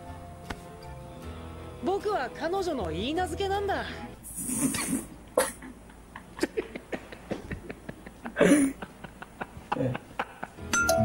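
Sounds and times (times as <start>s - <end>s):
man laughing: 5.4s - 10.6s.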